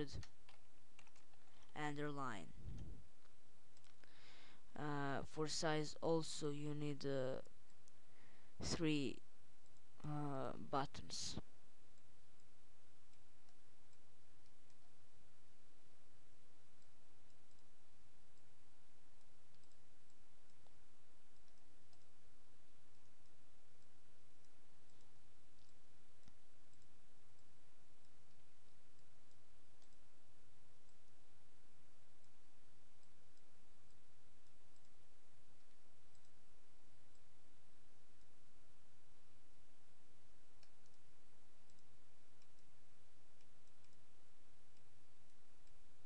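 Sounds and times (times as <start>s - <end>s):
computer mouse clicks: 0.0s - 1.8s, 16.8s - 18.5s, 19.2s - 22.2s, 22.8s - 31.2s, 32.1s - 37.4s, 40.5s - 45.9s
background hiss and low hum: 0.0s - 46.0s.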